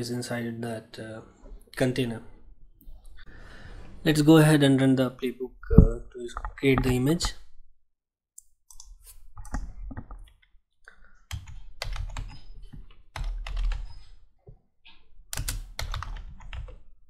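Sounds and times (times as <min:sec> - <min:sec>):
typing on computer keyboard: 0:11.2 - 0:14.2, 0:15.3 - 0:16.9.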